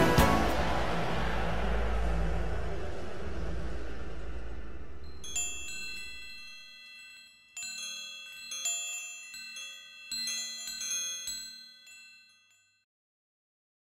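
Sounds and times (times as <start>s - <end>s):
tinkling chimes: 5.0s - 12.9s.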